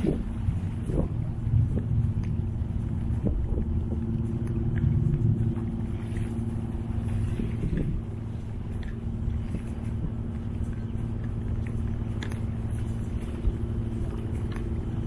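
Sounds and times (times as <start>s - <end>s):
low motor drone: 0.0s - 15.0s.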